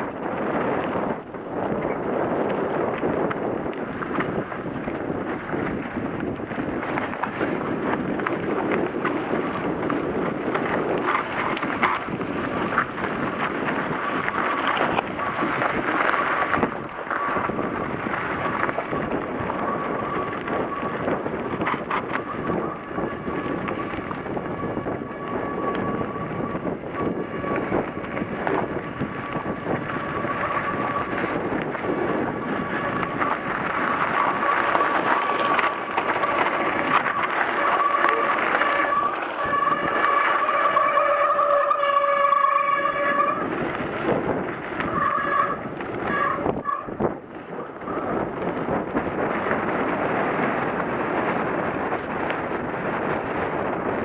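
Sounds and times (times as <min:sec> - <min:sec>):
bike clicks and knocks: 0:00.0 - 0:24.9, 0:26.8 - 0:40.4
wind buffeting microphone: 0:00.0 - 0:54.0
tyres crunching on gravel: 0:00.3 - 0:54.0
thin steady whine: 0:07.0 - 0:51.0.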